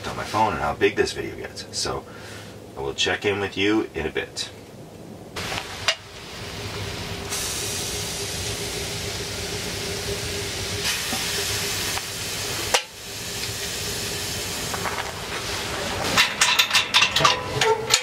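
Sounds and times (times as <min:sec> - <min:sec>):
beer sizzling in hot pan: 0:05.4 - 0:16.7.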